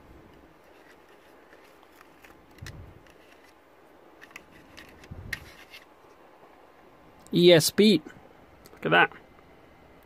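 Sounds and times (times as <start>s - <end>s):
plastic parts clicking and tapping: 4.2s - 5.8s.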